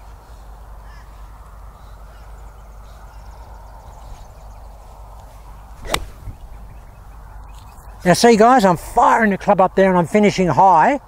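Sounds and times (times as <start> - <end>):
outdoor background noise: 0.0 - 11.0
golf club striking a ball: 5.8 - 6.6.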